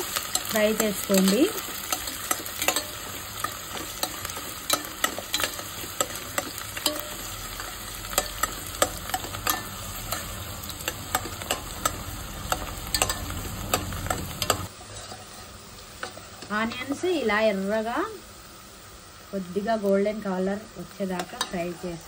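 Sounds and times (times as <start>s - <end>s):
steel spoon scraping pot: 0.0s - 15.5s
onions sizzling in oil: 0.0s - 22.0s.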